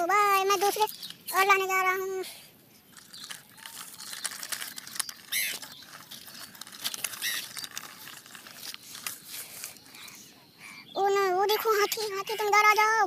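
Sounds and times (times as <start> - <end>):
toy truck scraping over dirt: 2.9 - 9.9.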